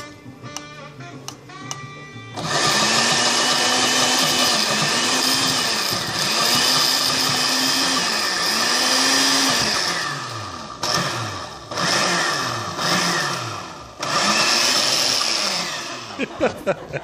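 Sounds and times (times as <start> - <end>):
blender motor running: 2.4 - 16.4.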